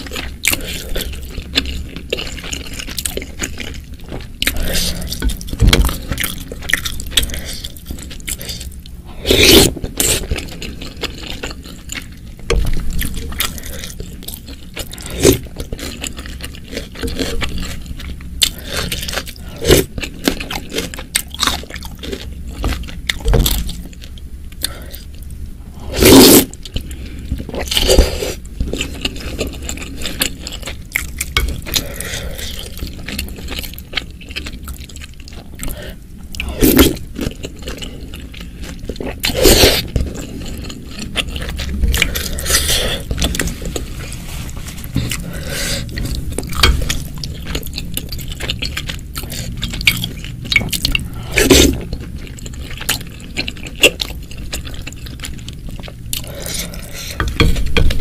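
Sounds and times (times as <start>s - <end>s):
wet chewing: 25.9s - 58.0s.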